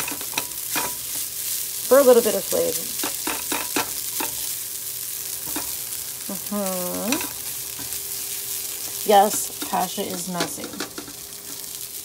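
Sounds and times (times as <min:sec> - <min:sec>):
spatula scraping a frying pan: 0:00.0 - 0:01.6, 0:03.0 - 0:04.6
food sizzling: 0:00.0 - 0:12.0.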